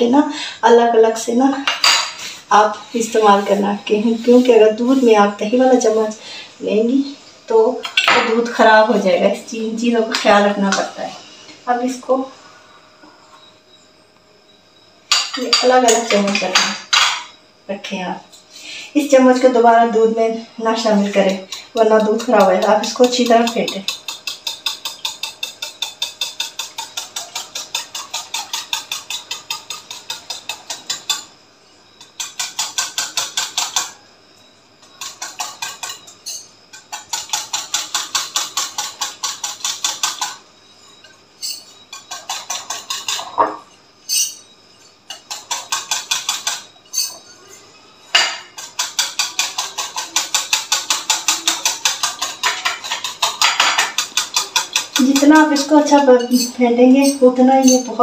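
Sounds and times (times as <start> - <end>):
spoon beating yogurt in glass bowl: 20.8 - 31.2, 48.6 - 58.0.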